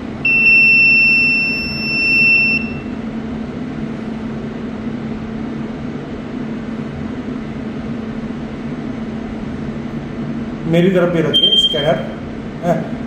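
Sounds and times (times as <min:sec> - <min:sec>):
low machine hum: 0:00.0 - 0:13.0
long high-pitched beep: 0:00.2 - 0:02.9, 0:11.2 - 0:12.2.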